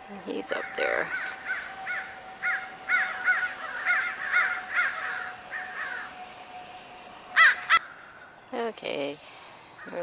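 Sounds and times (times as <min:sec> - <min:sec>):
kite whistling calls: 0:01.2 - 0:07.8.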